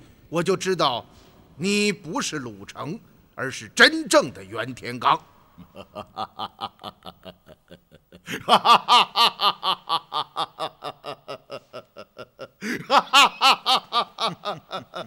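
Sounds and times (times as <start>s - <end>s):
man laughing aloud: 5.6s - 15.0s.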